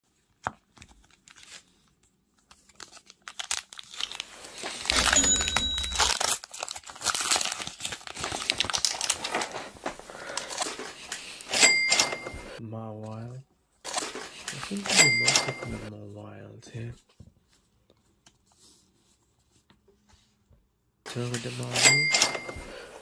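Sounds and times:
foil wrapper crinkling and tearing: 0.6 - 11.4.

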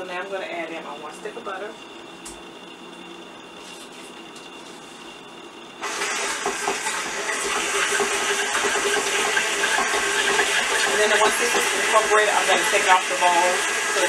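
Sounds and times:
stand mixer running: 5.7 - 14.0.

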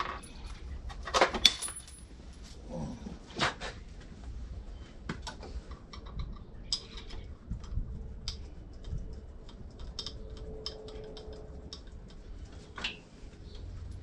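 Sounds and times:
hand tools clicking and tapping: 5.1 - 13.0.

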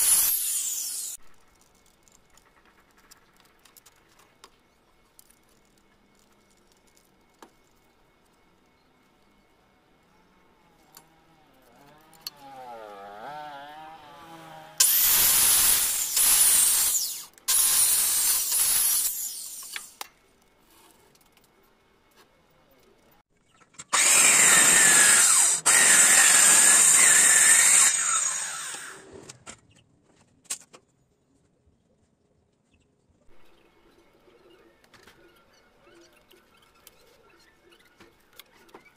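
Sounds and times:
electric power saw cutting wood: 0.0 - 1.2, 11.7 - 20.0, 23.9 - 29.2.

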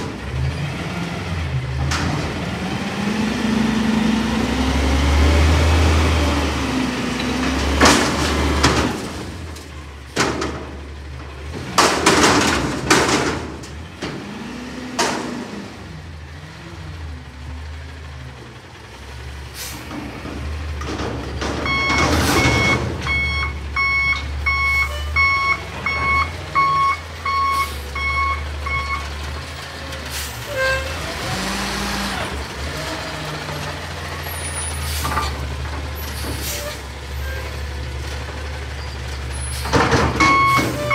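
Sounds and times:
garbage truck engine hum: 0.0 - 40.9
reversing alarm beeps: 21.6 - 29.0, 40.2 - 40.9.

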